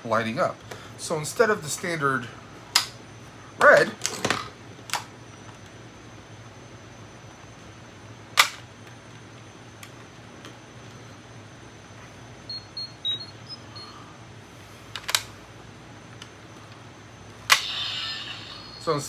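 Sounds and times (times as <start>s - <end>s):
faint high beeps: 12.5s - 14.1s.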